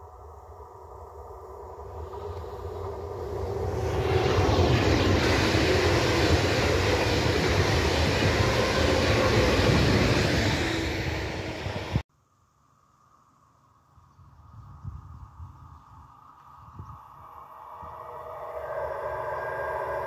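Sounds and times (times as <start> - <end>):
high-speed train passing: 0.0 - 12.0, 17.0 - 20.0.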